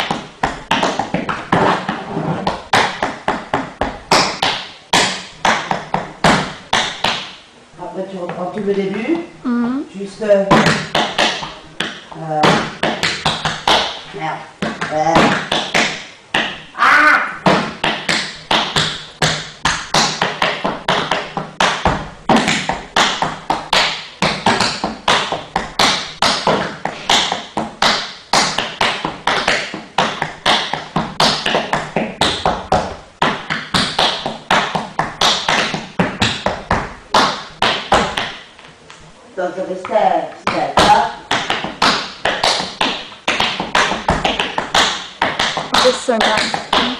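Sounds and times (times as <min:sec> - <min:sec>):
tap shoes on hard floor: 0:00.0 - 0:07.3, 0:17.4 - 0:38.4, 0:39.8 - 0:46.9.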